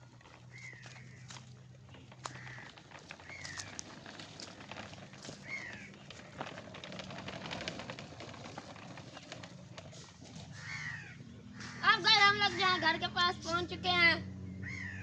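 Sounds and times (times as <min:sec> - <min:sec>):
light clicking and rustling: 0:00.2 - 0:10.5.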